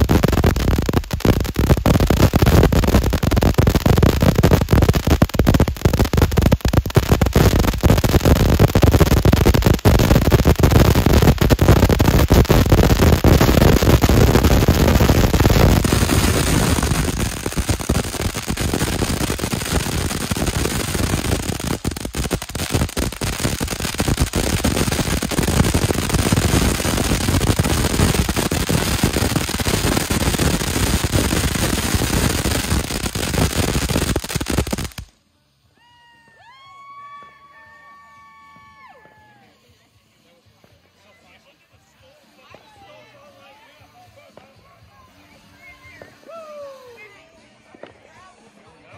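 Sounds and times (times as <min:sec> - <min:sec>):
crackling pops: 0:00.0 - 0:35.2
firework fountain spraying sparks: 0:00.0 - 0:48.9.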